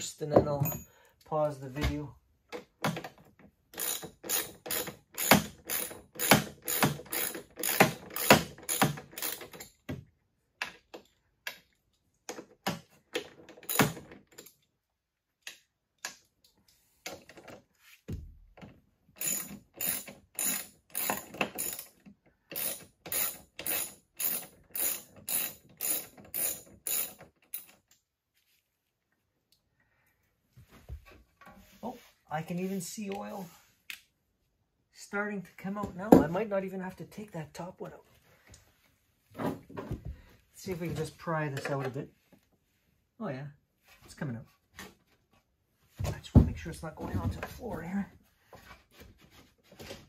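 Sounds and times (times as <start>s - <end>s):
ratchet wrench clicking: 3.8s - 9.6s, 19.2s - 27.7s.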